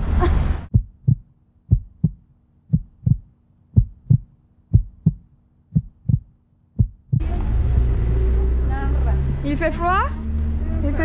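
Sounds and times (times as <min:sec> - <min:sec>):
heartbeat thumps: 0:00.7 - 0:07.3.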